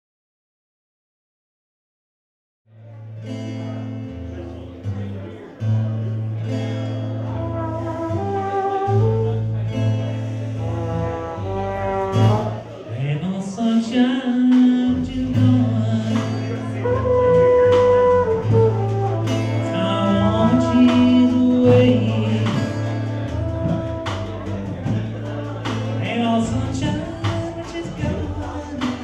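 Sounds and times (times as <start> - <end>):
acoustic guitar: 2.7 - 29.0
trumpet melody: 7.2 - 9.8, 10.6 - 12.8, 16.6 - 25.5
drums: 7.5 - 29.0.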